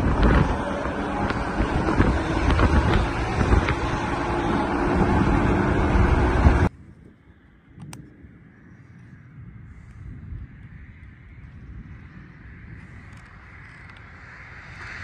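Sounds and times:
highway traffic passing: 0:00.0 - 0:06.7, 0:11.8 - 0:15.0
wind on microphone: 0:00.0 - 0:15.0.

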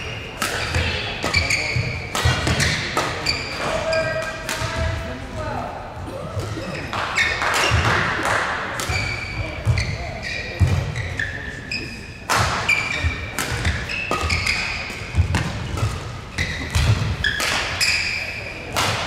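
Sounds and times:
shoe squeaks on court: 0:00.0 - 0:04.2, 0:08.9 - 0:18.6
racket hitting shuttlecock: 0:00.4 - 0:04.9, 0:06.9 - 0:09.9, 0:12.3 - 0:19.0.

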